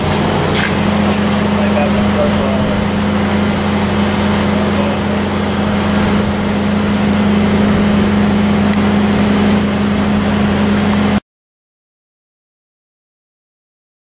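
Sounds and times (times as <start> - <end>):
diesel generator running: 0.0 - 11.2.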